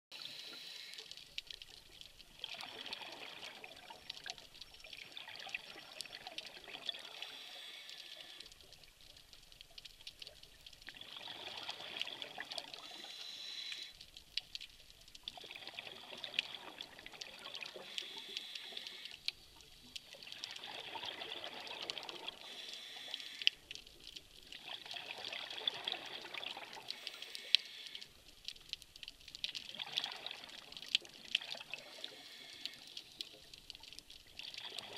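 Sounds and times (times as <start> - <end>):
diver breathing through regulator: 7.1 - 8.5, 12.8 - 14.0, 17.8 - 19.2, 22.4 - 23.6, 26.9 - 28.1, 31.9 - 32.9.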